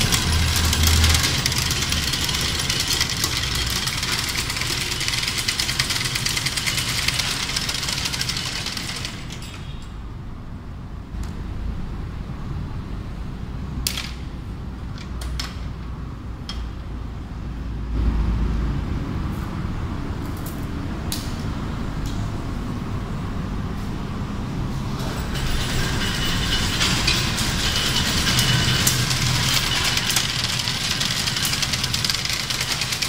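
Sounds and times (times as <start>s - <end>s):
harsh metallic rattle: 0.0s - 9.8s, 24.9s - 33.0s
weaving machine rumbling: 0.0s - 9.8s, 24.7s - 33.0s.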